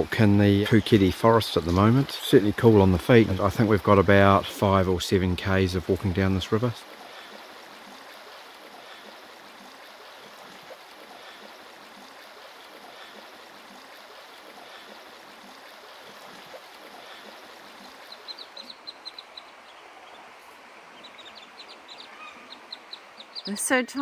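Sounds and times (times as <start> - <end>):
river running over stones: 0.0 - 24.0
ducklings peeping: 17.0 - 20.3, 20.9 - 23.6.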